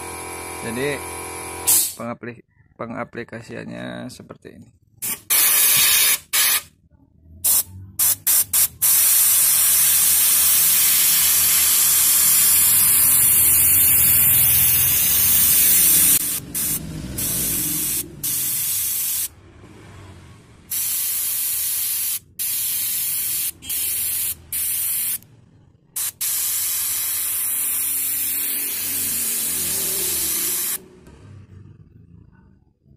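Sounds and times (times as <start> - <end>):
spray gun hissing: 7.5 - 19.3, 20.7 - 25.2, 26.0 - 30.8.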